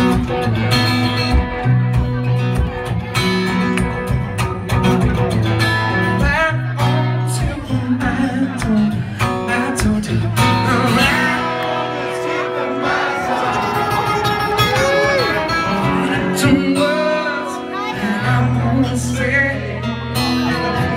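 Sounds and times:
amplified guitar strumming: 0:00.0 - 0:20.9
man singing: 0:05.9 - 0:20.9.

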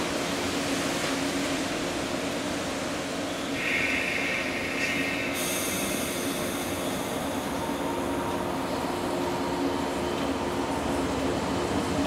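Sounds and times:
electric train rolling and motor noise: 0:00.0 - 0:12.0
faint air hiss: 0:03.5 - 0:08.6.

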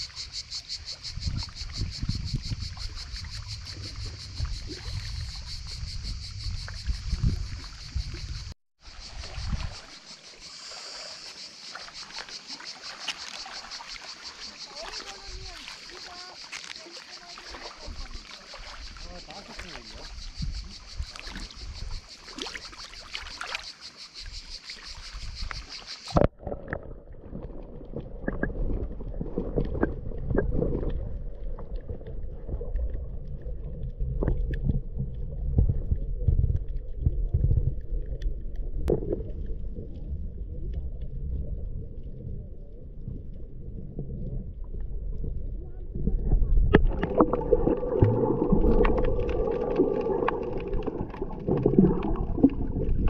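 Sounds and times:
seawater lapping over rocks: 0:08.9 - 0:20.2, 0:20.8 - 0:24.0, 0:24.6 - 0:41.4, 0:44.2 - 0:53.0
muffled underwater rumble: 0:26.2 - 0:53.0
scattered underwater clicks: 0:27.8 - 0:39.4, 0:46.7 - 0:53.0.

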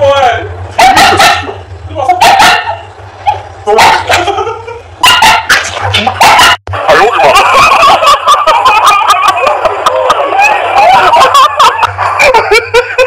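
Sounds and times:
voices: 0:00.0 - 0:13.0
small dogs barking and yipping: 0:00.8 - 0:12.4
people giggling: 0:03.7 - 0:13.0.

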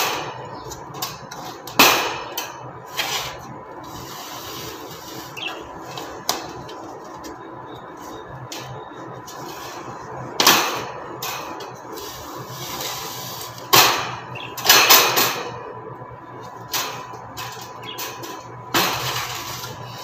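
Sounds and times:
wire birdcage scraping: 0:02.4 - 0:10.2, 0:10.8 - 0:15.6, 0:16.7 - 0:20.0.

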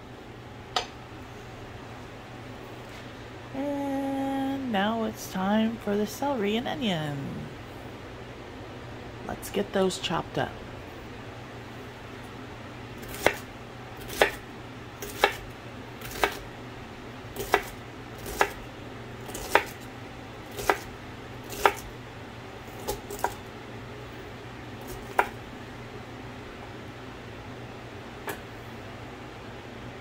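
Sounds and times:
knife chopping on wooden board: 0:13.0 - 0:14.4, 0:15.0 - 0:15.4, 0:16.0 - 0:16.4, 0:17.4 - 0:18.6, 0:19.3 - 0:19.8, 0:20.5 - 0:20.9, 0:21.5 - 0:21.9, 0:22.8 - 0:23.4, 0:24.8 - 0:25.4.

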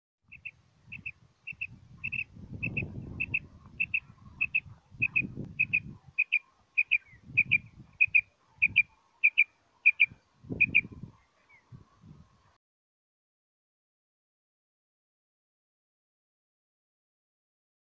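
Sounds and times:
quail calling: 0:00.3 - 0:11.6.

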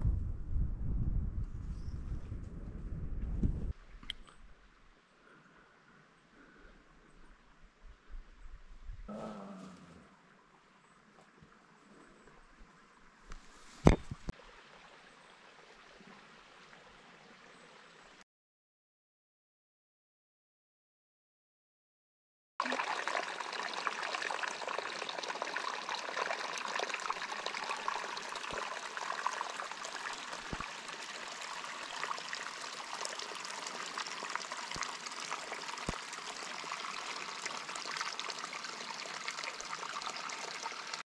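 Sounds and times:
soft low thumps: 0:00.0 - 0:03.7
spring water trickling through brush: 0:11.1 - 0:14.9, 0:22.6 - 0:41.0.

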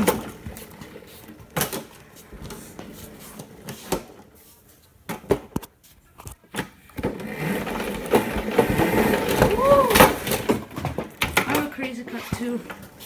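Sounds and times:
go-kart frame rattling: 0:07.1 - 0:12.6.

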